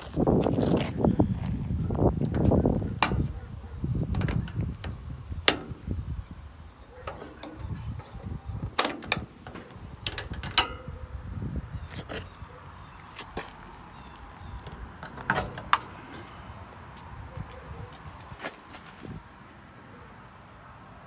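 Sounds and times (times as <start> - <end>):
handling rumble: 0.0 - 19.3
metal latches clicking: 2.2 - 3.4, 4.0 - 6.1, 6.8 - 11.0, 14.5 - 16.5.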